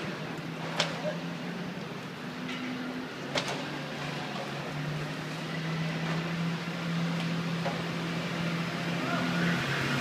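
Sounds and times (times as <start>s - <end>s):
traffic engine hum: 0.0s - 10.0s.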